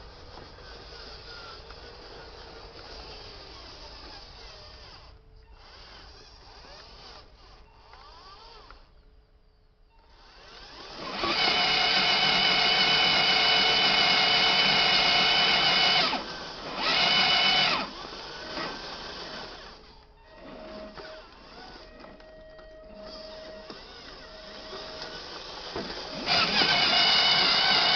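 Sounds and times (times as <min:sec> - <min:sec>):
electric motor and gearbox whining: 0:00.0 - 0:27.9.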